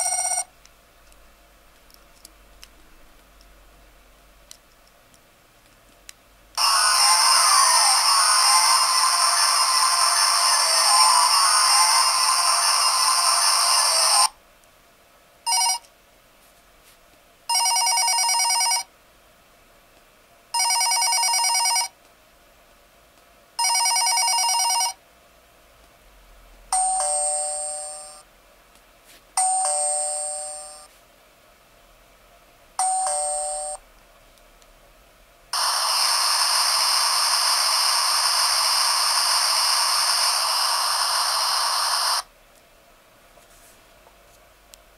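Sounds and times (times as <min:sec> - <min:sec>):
electronic telephone ring: 0:00.0 - 0:00.5, 0:15.5 - 0:15.8, 0:17.5 - 0:18.9, 0:20.6 - 0:21.9, 0:23.6 - 0:25.0, 0:32.8 - 0:33.8
ding-dong doorbell chime: 0:26.8 - 0:28.2, 0:29.4 - 0:30.9, 0:32.8 - 0:33.8
steady hissing background: 0:35.4 - 0:42.3.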